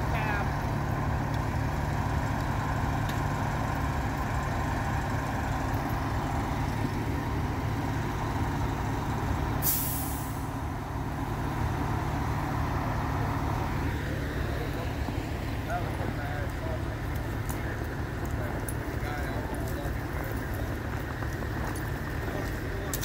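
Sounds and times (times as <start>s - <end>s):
fire engine idling: 0.0s - 23.0s
air brakes hiss: 9.6s - 10.4s.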